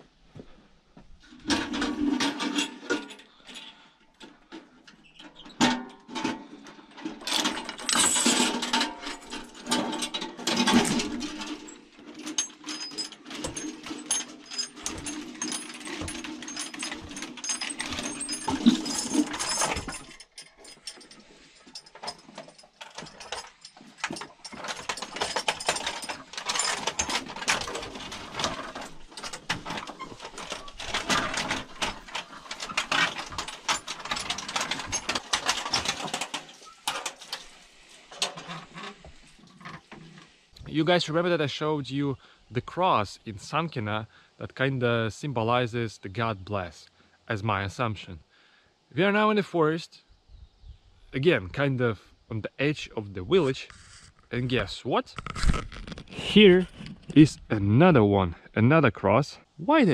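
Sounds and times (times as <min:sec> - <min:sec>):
windlass creaking: 0:02.7 - 0:40.6, 0:53.4 - 0:57.8
chain rattling and clinking: 0:05.1 - 0:40.3.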